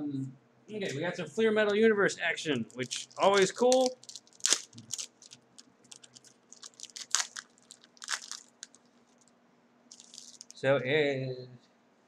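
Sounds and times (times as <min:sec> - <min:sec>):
wrapper tearing and crinkling: 0:02.6 - 0:09.3, 0:09.9 - 0:10.6.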